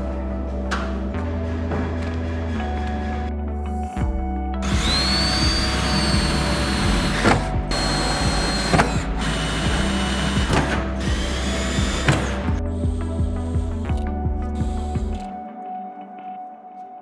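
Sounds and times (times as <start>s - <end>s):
cordless drill whining through metal: 4.6s - 12.6s.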